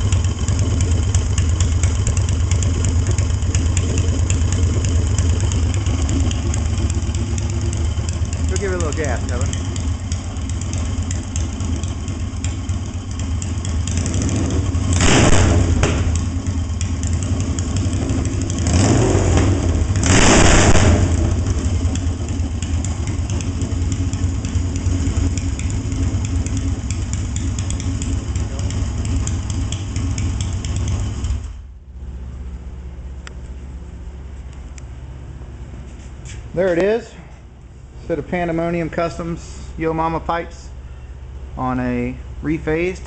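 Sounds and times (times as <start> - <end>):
motorcycle engine running and revving: 0.0 - 31.7.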